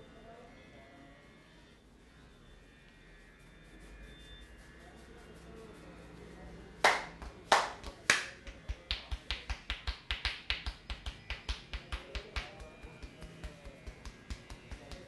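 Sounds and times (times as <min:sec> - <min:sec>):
fingers snapping hair: 0:06.8 - 0:15.0.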